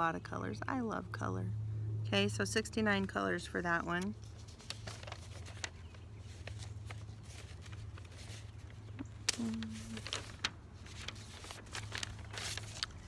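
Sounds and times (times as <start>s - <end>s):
low background hum: 0.0s - 13.0s
paper rustling: 3.9s - 13.0s
woman humming: 9.3s - 10.1s.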